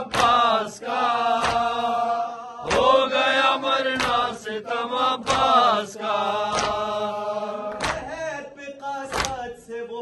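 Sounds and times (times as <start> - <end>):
chest-beating slaps: 0.0 - 0.6, 1.4 - 1.8, 4.0 - 4.4, 5.2 - 5.6, 6.5 - 6.9, 7.7 - 8.1
voices chanting a lament: 0.0 - 10.0.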